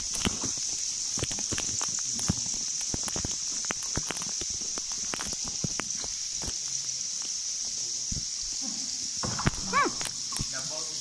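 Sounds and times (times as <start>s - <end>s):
water dripping into river: 0.0s - 8.5s
steady high hiss: 0.0s - 11.0s.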